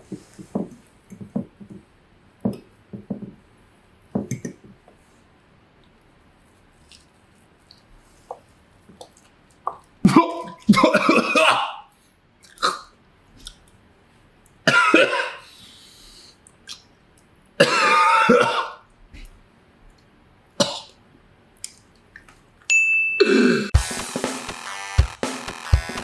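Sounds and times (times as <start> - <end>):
man coughing and clearing throat: 10.1 - 11.9, 14.7 - 15.4, 17.6 - 18.8
electronic music with drum hits: 23.8 - 26.0.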